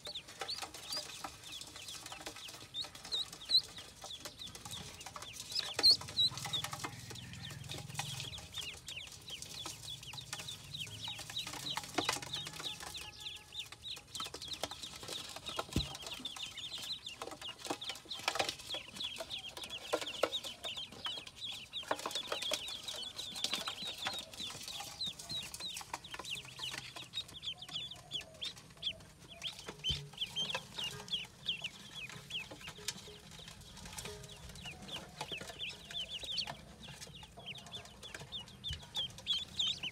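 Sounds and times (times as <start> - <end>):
ducklings peeping: 0.0 - 39.9.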